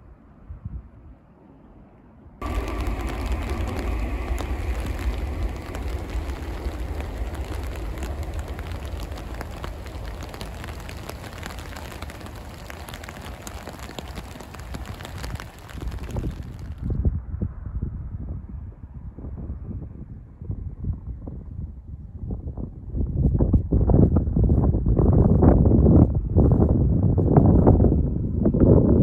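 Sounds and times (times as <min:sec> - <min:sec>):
faint hum: 0:01.4 - 0:17.0
raindrops ticking: 0:02.4 - 0:16.9
wind buffeting microphone: 0:02.4 - 0:29.0.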